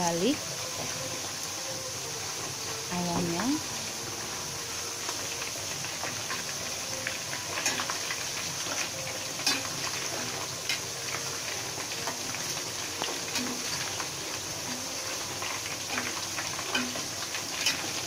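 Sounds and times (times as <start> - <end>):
chicken deep-frying sizzle: 0.0 - 18.0
metal ladle scraping a wok: 7.6 - 10.8.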